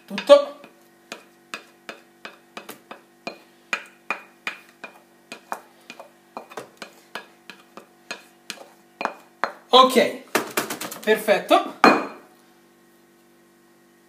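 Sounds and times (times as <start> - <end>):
wooden spoon tapping on a bowl: 0.1 - 9.6.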